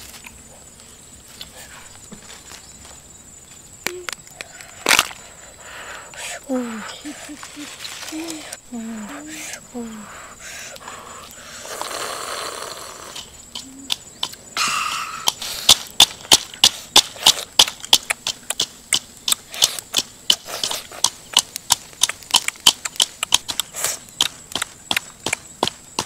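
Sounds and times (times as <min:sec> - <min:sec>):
wet sucking and slurping: 0:10.2 - 0:13.3
loud lip-smacking: 0:16.6 - 0:25.4.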